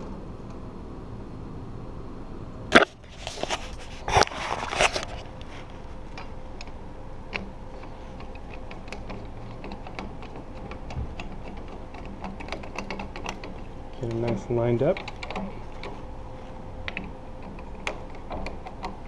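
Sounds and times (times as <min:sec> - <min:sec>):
door lock hardware rattling: 0:08.2 - 0:16.0.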